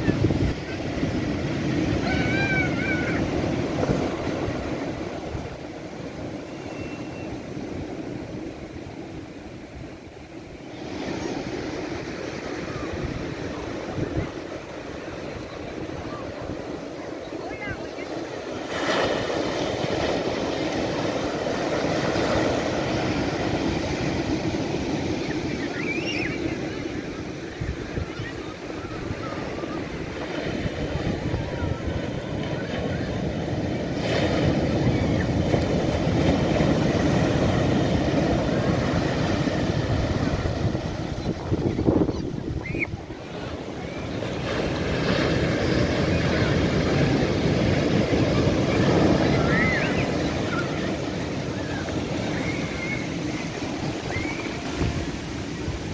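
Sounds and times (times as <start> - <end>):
waves breaking on sandy beach: 0.0 - 55.9
bird calling: 6.5 - 7.4, 25.2 - 26.9, 42.0 - 43.0, 51.6 - 54.7.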